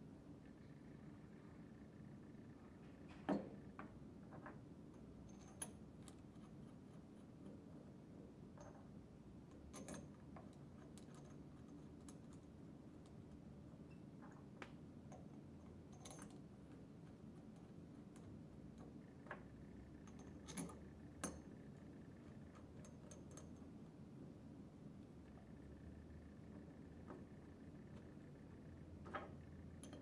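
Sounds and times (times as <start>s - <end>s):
faint metal clicks and taps: 3.1s - 7.7s, 8.5s - 24.0s, 29.0s - 30.0s.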